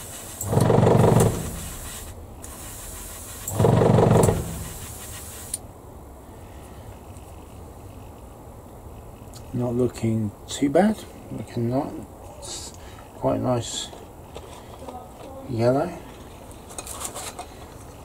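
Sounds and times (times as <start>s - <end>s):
airbrush hissing: 0.0s - 5.6s.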